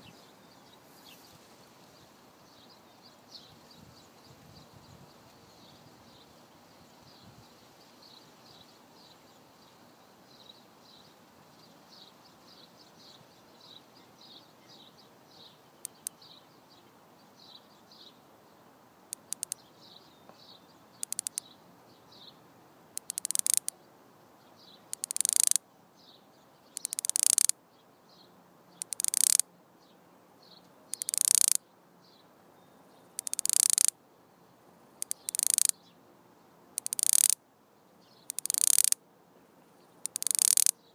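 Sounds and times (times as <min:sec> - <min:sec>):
cicada clicks: 0:15.8 - 0:16.3, 0:19.1 - 0:19.7, 0:20.3 - 0:21.5, 0:22.9 - 0:23.8, 0:24.9 - 0:25.6, 0:26.7 - 0:27.6, 0:28.8 - 0:29.5, 0:30.9 - 0:31.6, 0:33.1 - 0:34.0, 0:35.0 - 0:35.8, 0:36.7 - 0:37.4, 0:38.2 - 0:39.0, 0:40.0 - 0:40.9
cicada buzzing: 0:19.1 - 0:19.6, 0:21.0 - 0:21.4, 0:23.0 - 0:23.7, 0:24.9 - 0:25.6, 0:26.8 - 0:27.5, 0:28.8 - 0:29.4, 0:30.9 - 0:31.6, 0:33.2 - 0:33.9, 0:35.0 - 0:35.8, 0:36.8 - 0:37.4, 0:38.3 - 0:39.0, 0:40.0 - 0:40.8
faint high chirping: 0:24.5 - 0:29.4, 0:30.4 - 0:33.9, 0:35.0 - 0:36.0, 0:38.0 - 0:39.0.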